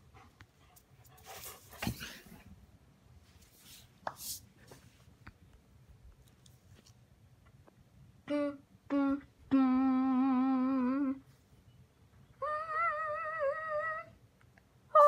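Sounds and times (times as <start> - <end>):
voiced humming or whining: 8.2 - 11.3.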